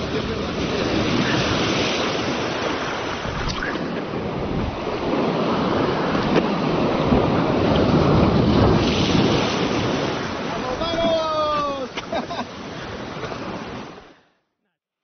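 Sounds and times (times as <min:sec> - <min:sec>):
wind buffeting microphone: 0:00.0 - 0:11.8
surf breaking on rocks: 0:00.0 - 0:12.2.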